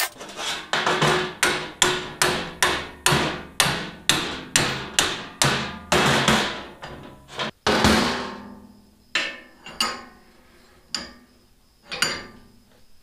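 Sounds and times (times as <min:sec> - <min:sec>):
hammer striking steel: 0:00.9 - 0:06.8.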